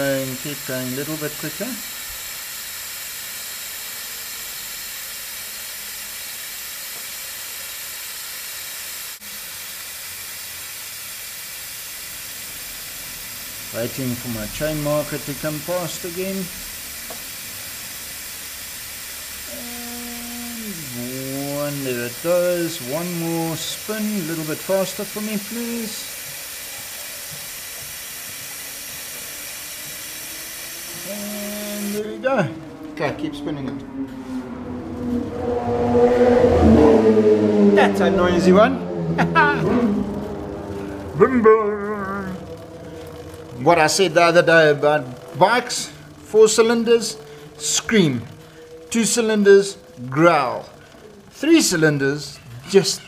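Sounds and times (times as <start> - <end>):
aerosol spray hissing: 0.0 - 32.1.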